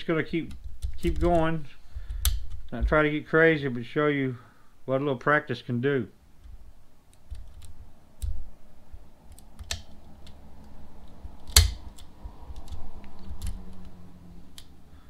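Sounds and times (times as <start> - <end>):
lock pick clicks and scrapes: 9.3 - 14.7.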